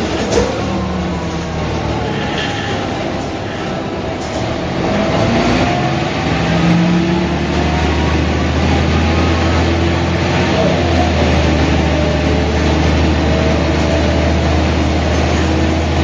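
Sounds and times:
bus diesel engine: 0.0s - 16.0s.

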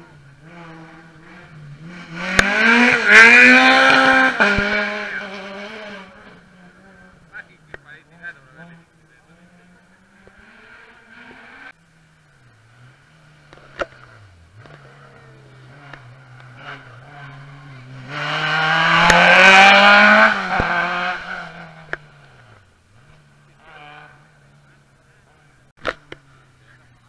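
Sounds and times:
rally car engine accelerating: 0.0s - 27.0s.

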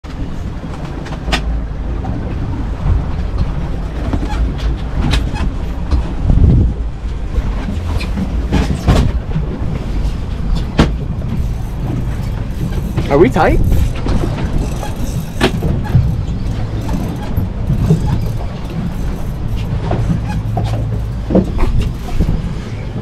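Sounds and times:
boat engine and hull rumble: 0.0s - 23.0s
water rushing: 0.2s - 23.0s
sharp knocks and rattles: 10.5s - 22.6s.

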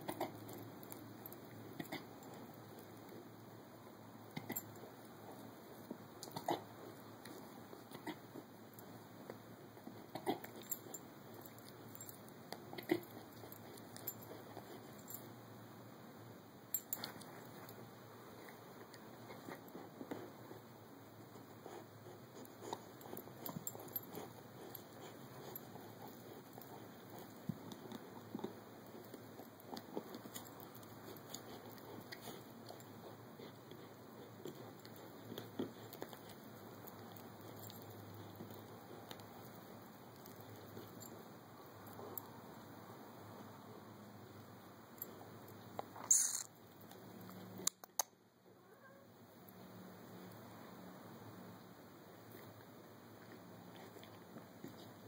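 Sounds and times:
puppy chewing: 4.3s - 15.4s, 16.8s - 44.0s, 52.3s - 55.0s.

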